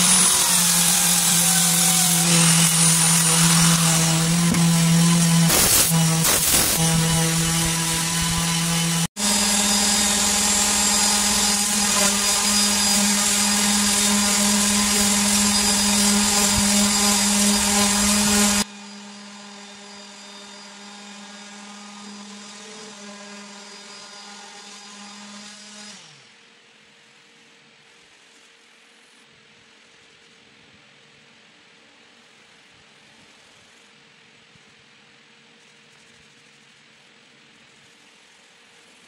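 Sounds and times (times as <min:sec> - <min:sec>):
wood lathe motor hum: 0:00.0 - 0:26.2
cloth pad hissing on wood: 0:05.5 - 0:06.8.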